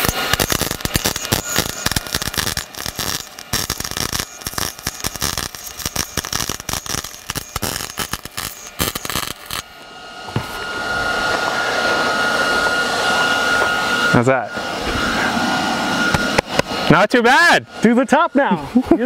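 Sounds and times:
welder arc crackling and sputtering: 0:00.0 - 0:09.9.

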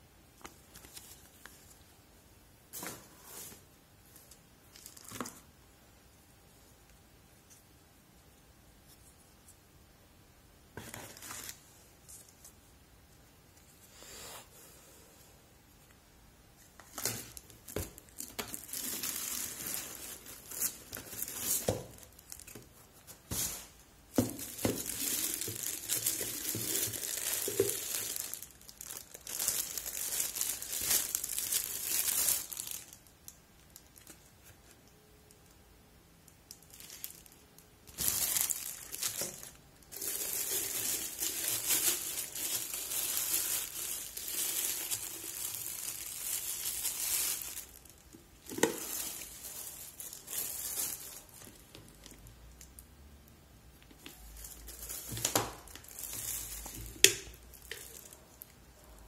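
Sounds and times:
plastic bags crinkling: 0:16.8 - 0:34.2, 0:36.5 - 0:52.4, 0:54.0 - 0:59.0.

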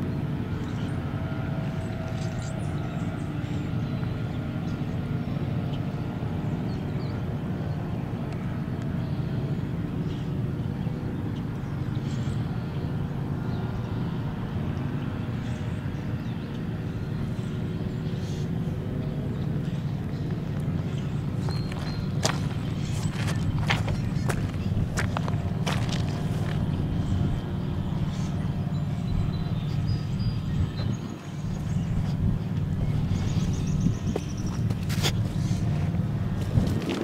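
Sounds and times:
distant engine drone: 0:00.0 - 0:37.0
bird chirps: 0:19.7 - 0:35.6.

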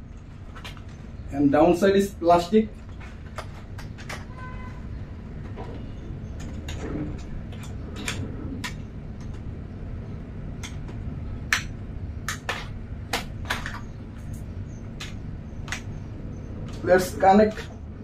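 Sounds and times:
steady low hum: 0:00.0 - 0:18.0
sharp cable clicks: 0:02.9 - 0:04.3, 0:10.6 - 0:16.0.

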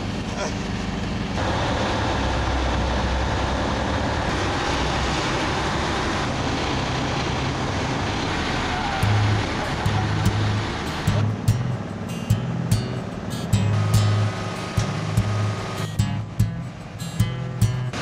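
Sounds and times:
ship engine droning: 0:00.0 - 0:18.0
wind and water rushing: 0:01.3 - 0:12.1.

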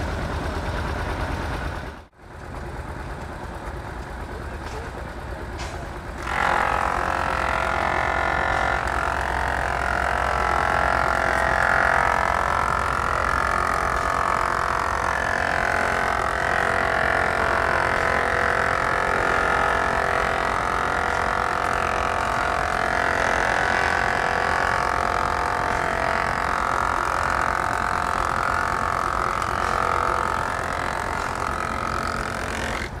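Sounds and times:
tractor engine running: 0:00.0 - 0:33.0
wood planer buzzing: 0:06.2 - 0:33.0.

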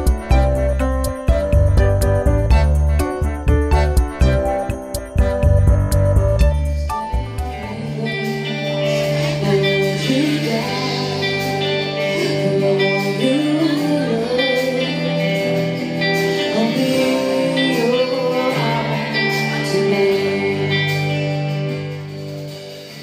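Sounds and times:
bass guitar: 0:00.0 - 0:23.0
electric guitar: 0:00.0 - 0:23.0
woman singing: 0:07.5 - 0:21.4.

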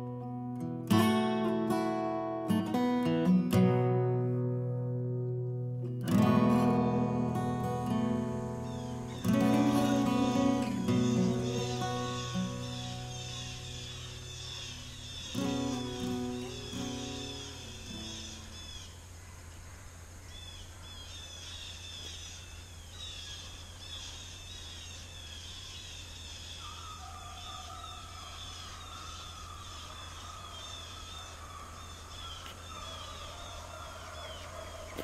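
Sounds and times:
small birds chirping: 0:06.1 - 0:19.4, 0:20.2 - 0:35.0
distant hound baying: 0:32.4 - 0:35.0.

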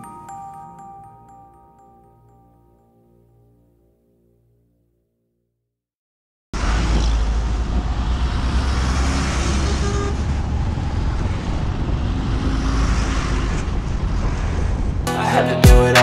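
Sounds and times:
road rumble from moving vehicle: 0:06.6 - 0:15.1
trucks passing close by: 0:06.6 - 0:15.1.

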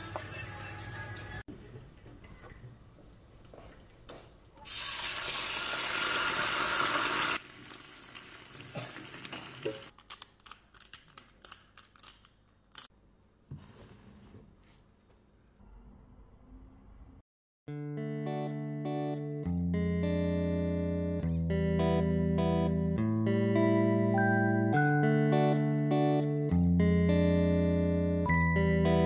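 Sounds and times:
eggs sizzling in hot oil: 0:04.6 - 0:09.9.

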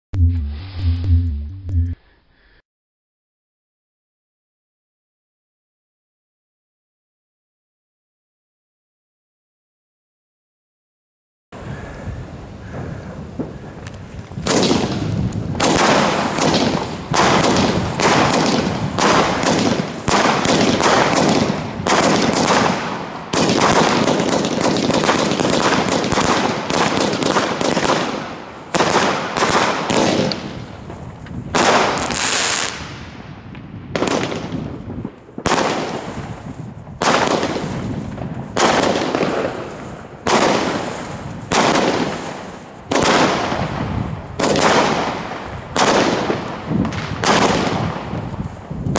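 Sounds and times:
firework cake firing: 0:12.8 - 0:48.9.

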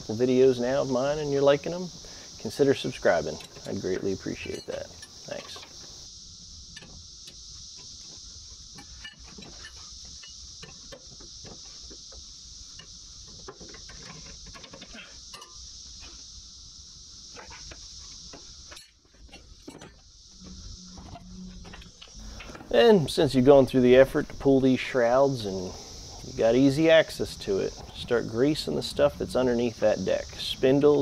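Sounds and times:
cicadas droning: 0:00.0 - 0:31.0.

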